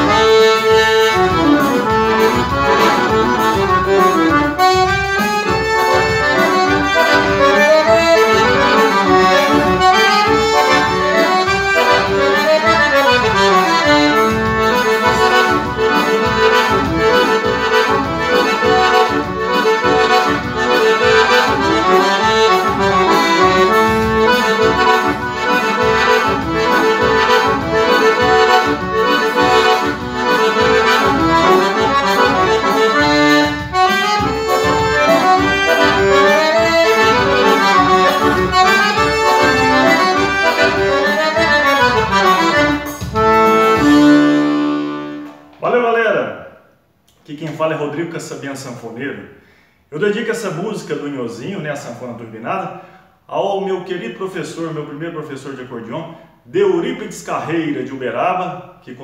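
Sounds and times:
accordion playing lively tune: 0.0 - 45.6.

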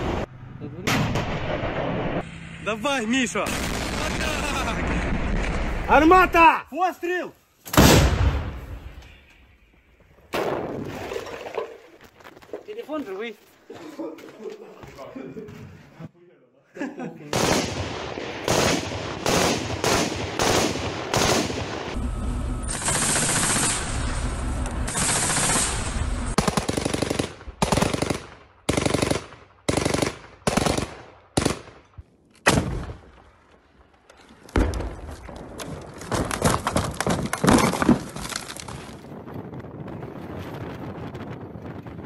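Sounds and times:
automatic gunfire bursts: 26.4 - 31.6.

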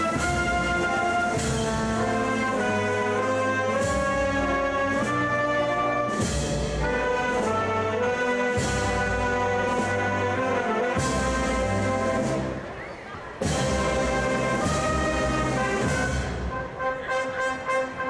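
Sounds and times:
brass band march: 0.0 - 18.0
percussion strikes: 6.1 - 7.7, 13.4 - 16.6.

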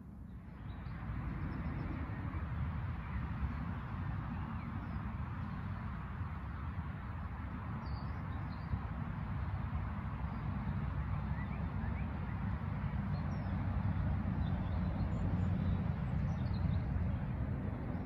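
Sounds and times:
low outdoor rumble: 12.3 - 18.0.

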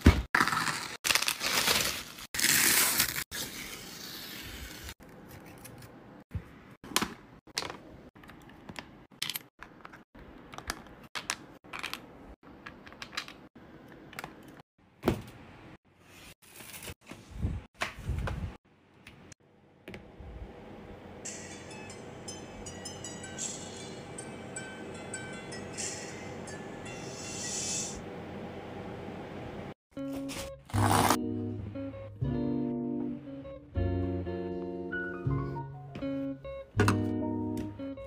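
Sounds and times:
packaging tearing and crinkling: 0.4 - 4.9.

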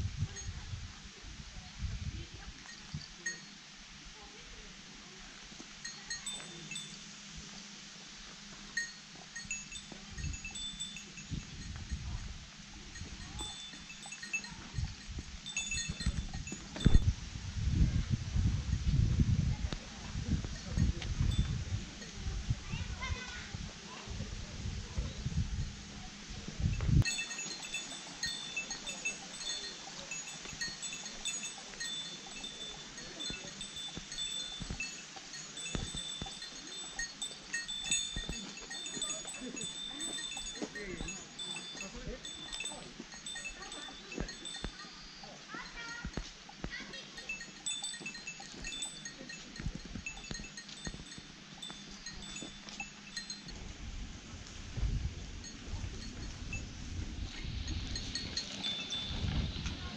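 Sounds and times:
small metal bell jingling: 2.4 - 3.6, 5.8 - 7.1, 8.7 - 17.1, 20.1 - 23.4, 27.0 - 53.7, 55.3 - 59.9
footsteps on paved path: 26.7 - 59.9
low thumps and rumbles: 49.6 - 59.9.

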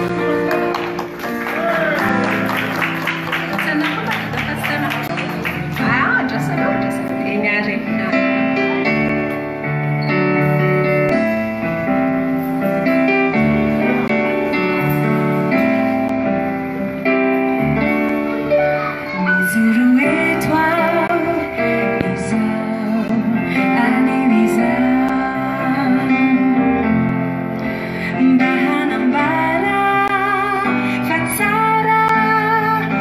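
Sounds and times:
guitar: 0.0 - 33.0
keyboard chords: 0.0 - 33.0
woman singing: 19.4 - 26.7, 28.1 - 33.0.

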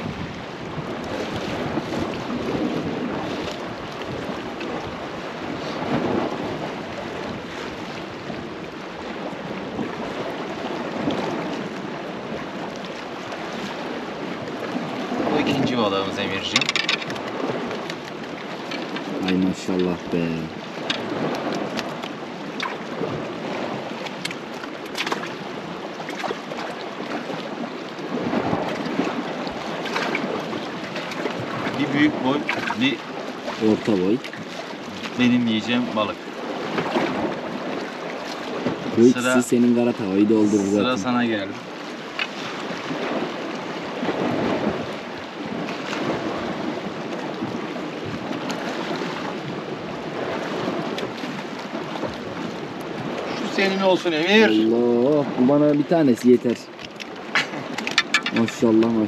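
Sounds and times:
sea water washing against rocks: 0.0 - 59.0
small splashes: 14.6 - 39.5.

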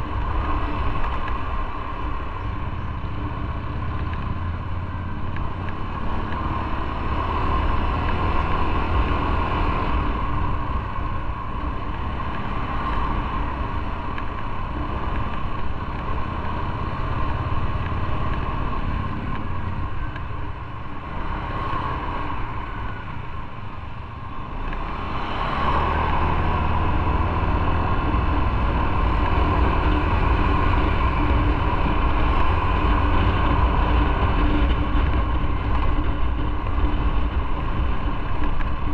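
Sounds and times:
motorcycle engine running: 25.8 - 38.9.

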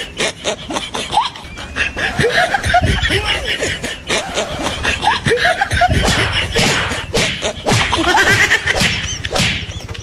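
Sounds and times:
hands slapping a person: 8.7 - 9.7.

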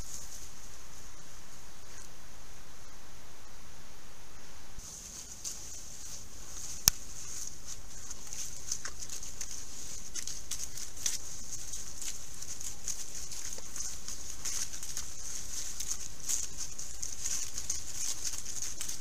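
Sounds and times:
rustling and crunching leaves: 0.0 - 2.0, 4.8 - 19.0
high-pitched hiss: 0.0 - 19.0.

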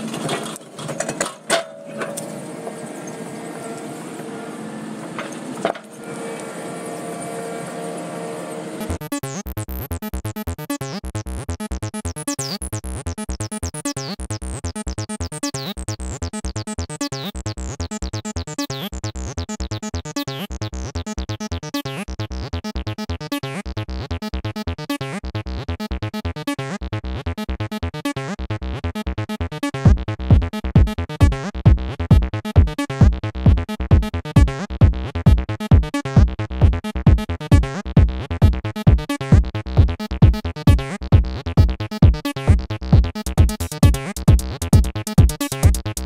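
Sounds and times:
music with fast steady beat: 8.8 - 46.0
heavy bass thumps: 29.9 - 46.0.

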